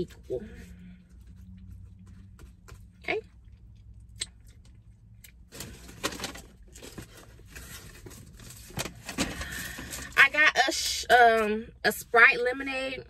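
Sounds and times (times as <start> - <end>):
low steady hum: 0.0 - 13.0
paper wrapper rustling: 5.5 - 10.2.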